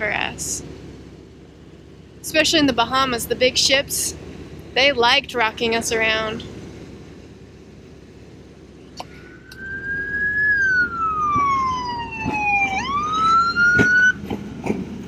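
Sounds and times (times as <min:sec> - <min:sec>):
boat siren wailing: 0:09.2 - 0:14.2.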